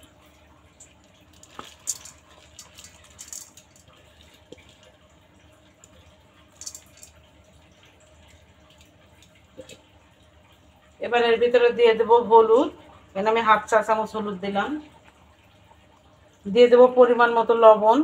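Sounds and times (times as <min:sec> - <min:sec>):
lentils pattering into pot: 0:00.8 - 0:04.9, 0:06.5 - 0:07.3.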